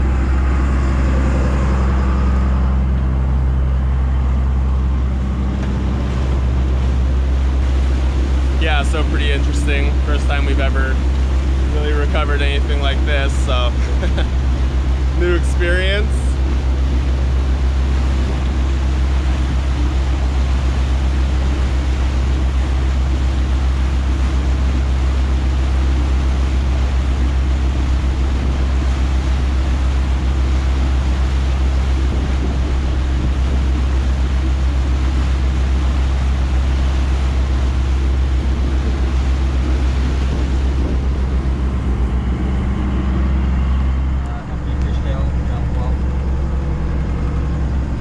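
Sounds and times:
boat engine droning: 0.0s - 48.0s
wake churning: 0.0s - 48.0s.

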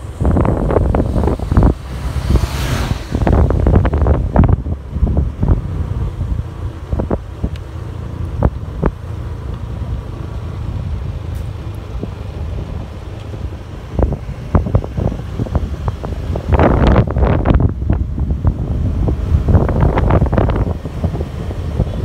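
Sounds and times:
gusty thumps: 0.0s - 7.5s
motorbike engine hum: 0.0s - 22.0s
wind buffeting microphone: 0.0s - 22.0s.

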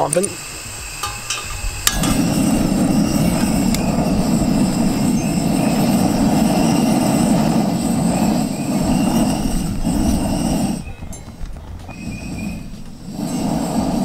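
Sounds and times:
camp stove burner rushing: 0.0s - 14.0s
stove click: 1.0s - 2.4s.

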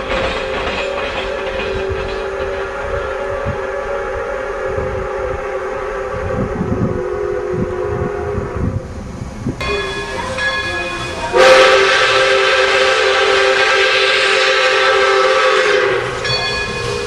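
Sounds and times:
steam hiss: 0.0s - 17.0s
steam whistle blowing chords: 2.6s - 8.8s, 9.6s - 17.0s.

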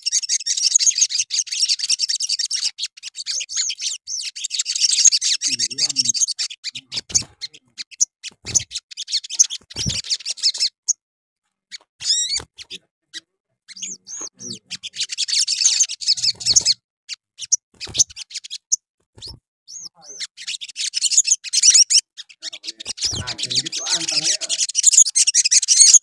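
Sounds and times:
songbird twittering: 0.0s - 11.0s, 11.7s - 26.0s
wing flutters: 9.4s - 10.7s, 17.7s - 18.2s.

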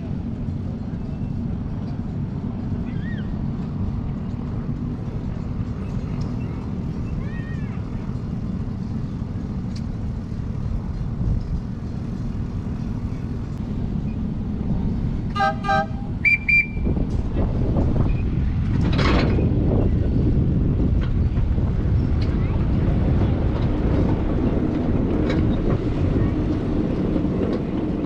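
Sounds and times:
miniature train rumbling: 0.0s - 28.0s
train whistle toots: 15.3s - 16.9s.

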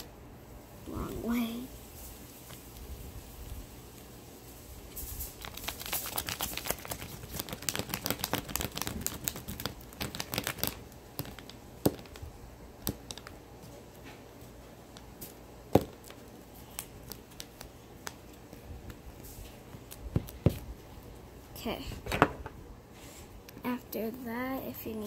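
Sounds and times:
paper crinkling and rustling: 4.9s - 12.2s.

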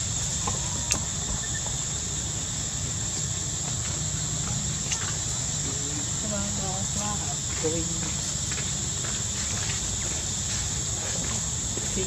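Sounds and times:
insects droning high-pitched: 0.0s - 12.0s.

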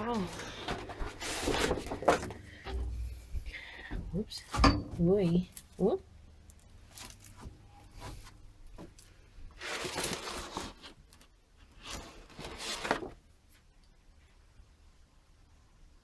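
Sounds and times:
rustling and scraping: 0.0s - 5.8s, 6.5s - 13.8s.

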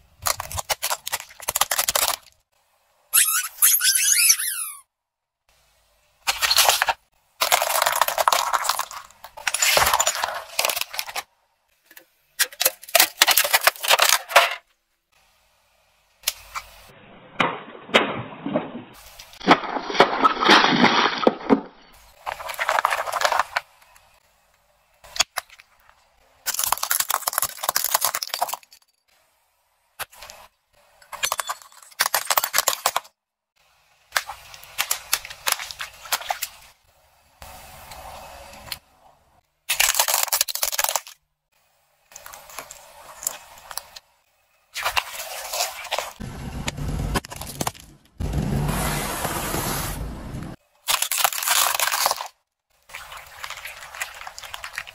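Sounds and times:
plastic bottles crunching under tyre: 6.3s - 11.3s, 17.9s - 23.8s, 47.0s - 48.7s, 50.8s - 52.4s.

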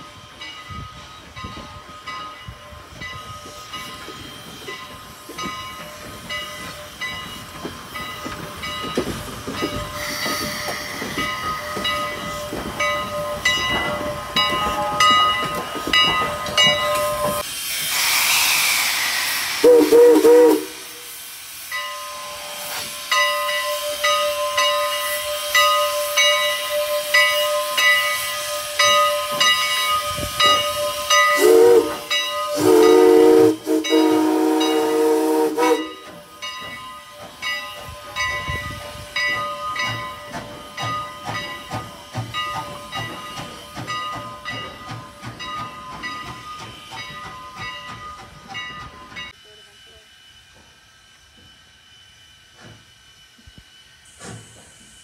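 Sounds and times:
steam locomotive bell ringing: 0.0s - 17.5s, 19.5s - 55.0s
steam hiss: 0.0s - 55.0s
steam whistle blast: 19.5s - 21.2s, 30.6s - 36.1s.

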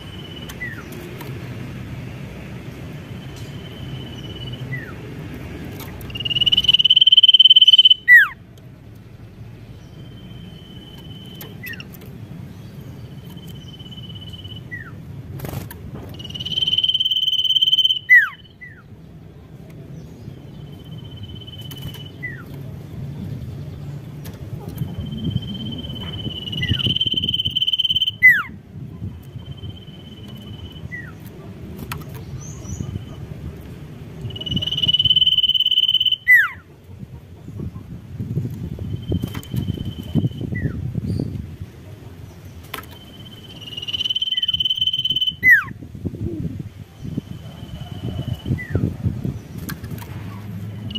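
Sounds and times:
bird singing high whistles: 6.1s - 8.4s, 16.2s - 18.8s, 25.0s - 28.6s, 34.3s - 36.6s, 43.0s - 45.7s.

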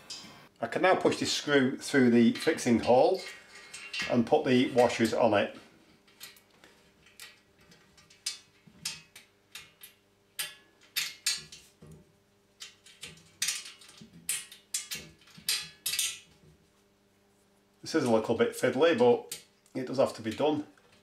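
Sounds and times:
washers clinking against metal bracket: 2.3s - 5.2s, 12.6s - 16.3s.

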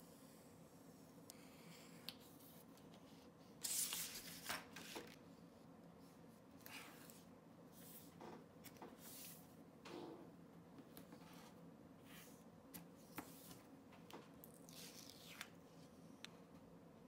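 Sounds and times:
paper rustling and scraping: 3.0s - 5.2s.

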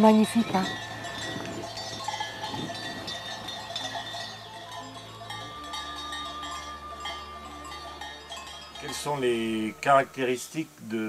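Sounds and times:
goat bells clanking: 0.0s - 10.5s.

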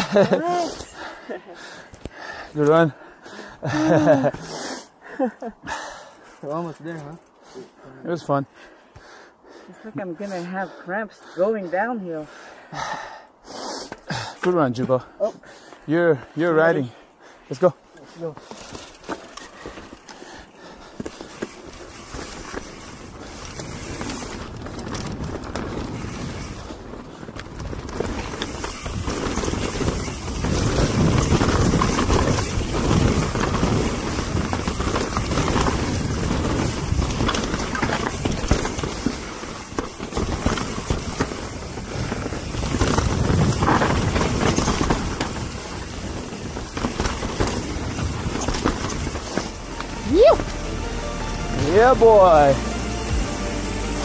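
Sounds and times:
tyres rolling on dirt: 0.0s - 4.5s, 17.6s - 54.0s
bike clicking and clattering: 18.3s - 50.6s
wind rushing over microphone: 22.9s - 39.4s, 40.3s - 50.4s.

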